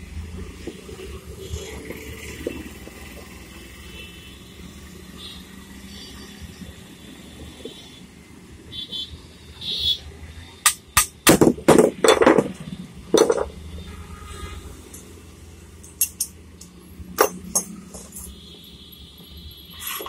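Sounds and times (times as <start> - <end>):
metal tools clinking on wood: 11.7 - 13.6, 15.8 - 18.4.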